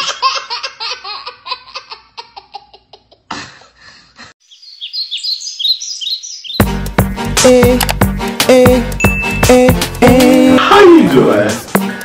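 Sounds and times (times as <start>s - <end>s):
little girl giggling: 0.0s - 3.8s
high falling bird chirps: 4.4s - 6.8s
music: 6.6s - 12.0s.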